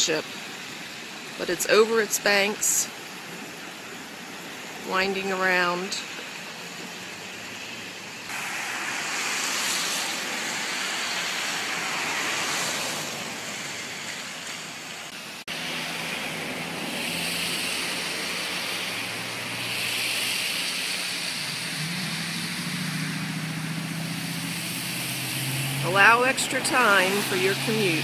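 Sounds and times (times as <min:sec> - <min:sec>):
floodwater rushing in stream: 0:00.0 - 0:28.0.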